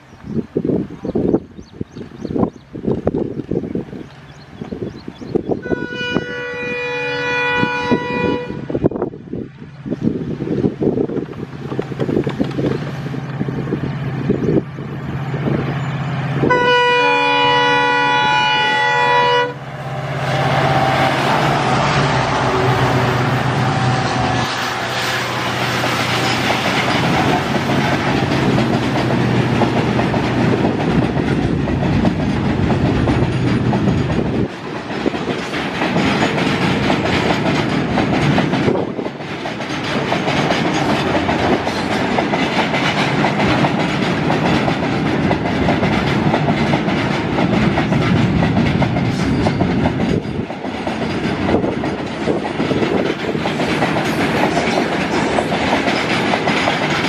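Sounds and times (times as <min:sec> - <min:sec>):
diesel locomotive engines droning: 0:00.0 - 0:57.0
locomotive horn: 0:05.6 - 0:08.8, 0:16.3 - 0:25.6
train wheels clacking on rails: 0:10.6 - 0:57.0.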